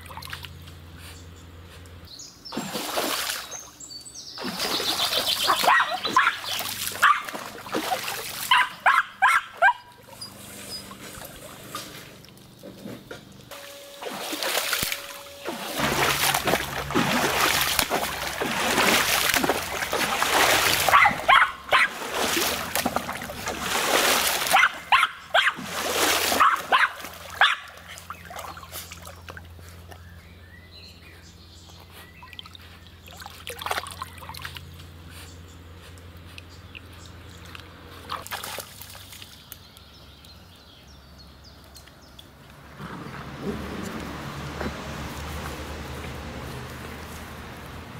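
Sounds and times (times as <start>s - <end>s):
dog splashing through water: 2.5s - 3.7s, 4.3s - 12.6s, 14.0s - 30.1s, 31.8s - 35.0s, 36.2s - 39.5s
water trickling: 14.3s - 29.5s.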